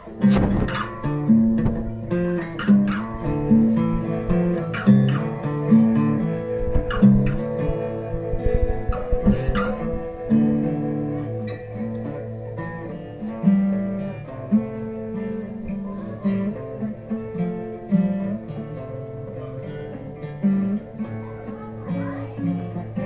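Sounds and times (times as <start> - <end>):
low held guitar note: 0.0 - 12.1
plucked guitar notes: 0.0 - 23.0.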